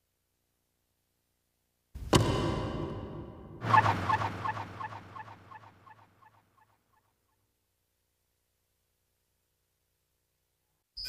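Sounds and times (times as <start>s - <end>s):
echoing pulses: 2.0s - 6.4s.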